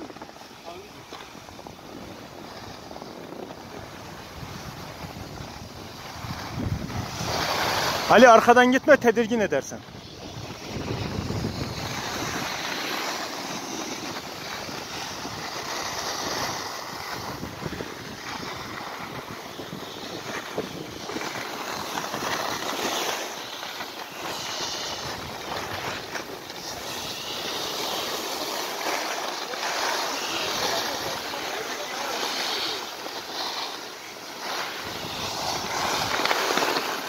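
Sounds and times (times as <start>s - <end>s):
wind rumbling on microphone: 0.0s - 33.3s, 33.9s - 37.0s
skis scraping over snow: 0.0s - 37.0s.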